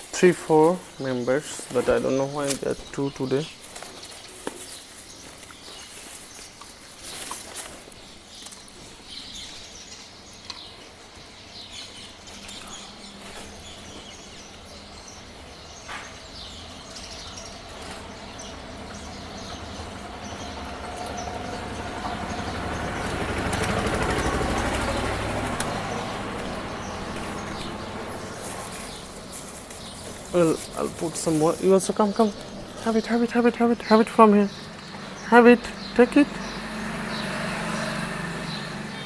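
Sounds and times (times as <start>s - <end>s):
birds chirping: 0.0s - 39.0s
street noise: 0.0s - 39.0s
vehicle passing: 16.3s - 39.0s.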